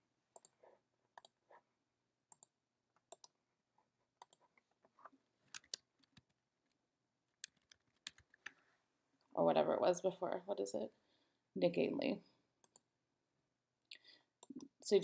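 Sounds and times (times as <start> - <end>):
computer mouse clicks: 0.4 - 0.6, 1.2 - 1.4, 3.1 - 3.4, 4.2 - 4.4, 5.5 - 6.4, 7.4 - 8.6, 12.6 - 12.9.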